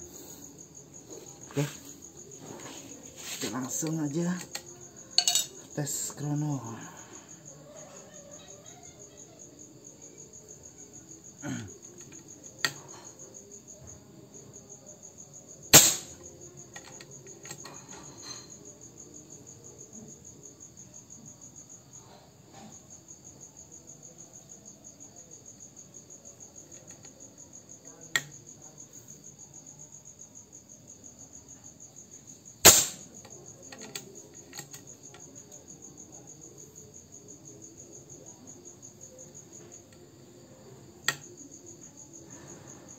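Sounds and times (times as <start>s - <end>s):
crickets chirping: 0.0s - 42.9s
air rifle shot crack: 15.8s - 16.1s, 32.7s - 33.0s
sharp rifle click: 15.8s - 16.2s, 32.6s - 33.1s.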